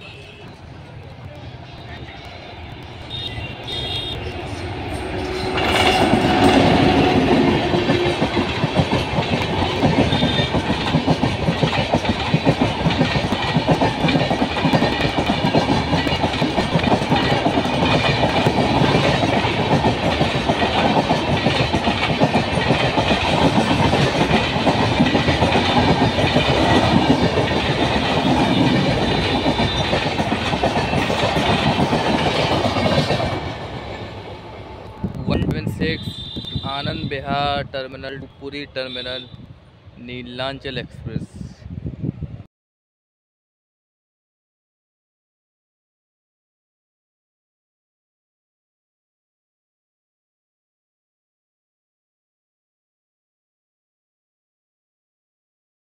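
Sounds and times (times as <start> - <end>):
train passing at speed: 0.0 - 42.5
wheels clattering on track: 2.8 - 34.2.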